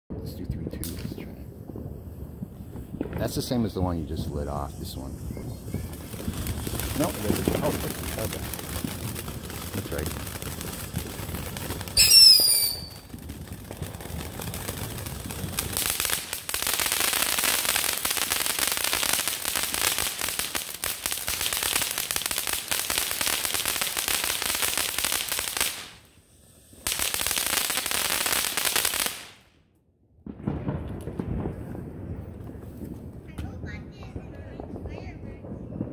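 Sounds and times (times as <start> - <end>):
fireworks hissing and crackling: 0.2 - 29.5, 30.3 - 35.9
whistle falling in pitch: 12.0 - 13.0.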